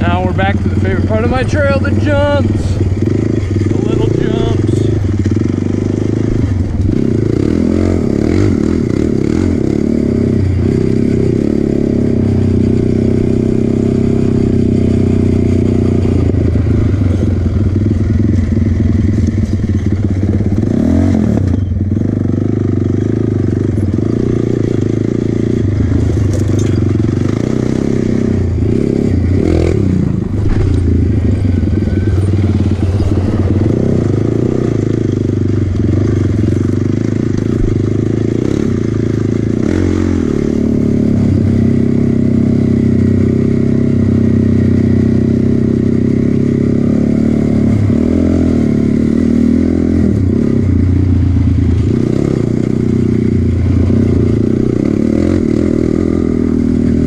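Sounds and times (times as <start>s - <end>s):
quad engine running: 0.0s - 57.0s.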